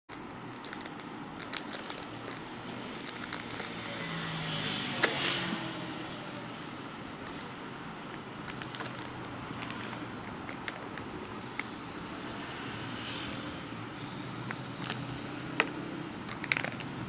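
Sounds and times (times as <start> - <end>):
plastic packets crinkling: 0.1 - 4.5, 8.5 - 12.0, 14.4 - 17.0.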